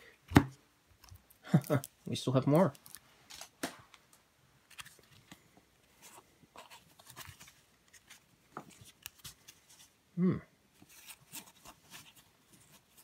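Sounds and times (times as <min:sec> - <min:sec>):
cards rustling: 0:04.6 - 0:10.0, 0:10.8 - 0:13.0.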